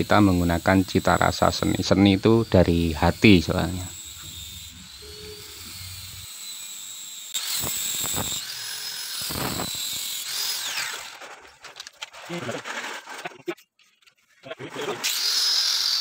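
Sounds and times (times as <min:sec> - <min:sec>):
sanding disc grinding hiss: 0:00.0 - 0:11.0
angle grinder motor whine: 0:00.0 - 0:11.4.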